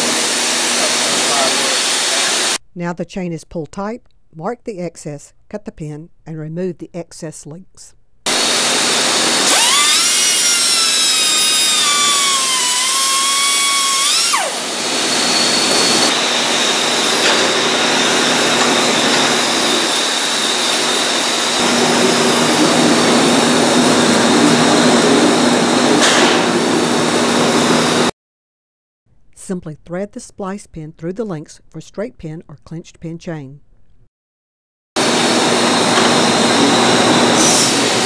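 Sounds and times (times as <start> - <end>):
cutoff tool whining through steel: 8.3 - 28.1.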